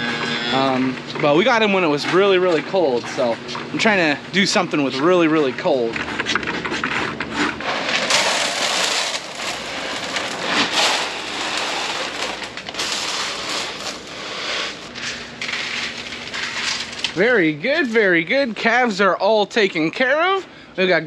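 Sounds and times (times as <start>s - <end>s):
grain pouring into tubs: 7.6s - 19.0s.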